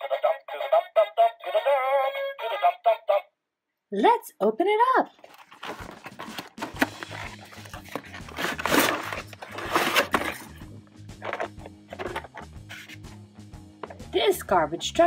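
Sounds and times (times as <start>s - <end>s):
cardboard box rustling and scraping: 5.2s - 10.6s, 11.2s - 13.0s.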